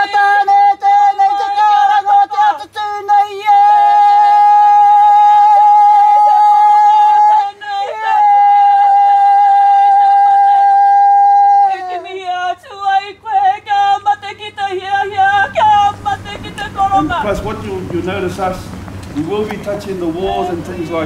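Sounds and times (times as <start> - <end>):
voice chanting: 0.0 - 21.0.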